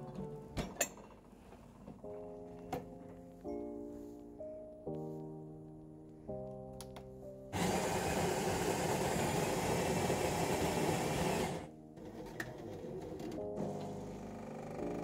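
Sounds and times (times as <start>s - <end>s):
coffee grinder grinding beans: 7.6s - 14.2s.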